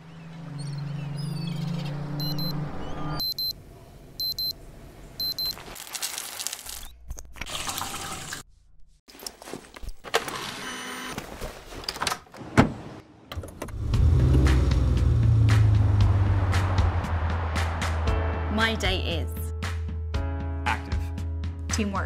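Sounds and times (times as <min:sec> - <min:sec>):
alarm clock double beeps: 0:02.2 - 0:02.6, 0:03.2 - 0:03.6, 0:04.2 - 0:04.5, 0:05.2 - 0:05.5
water running: 0:07.5 - 0:08.4.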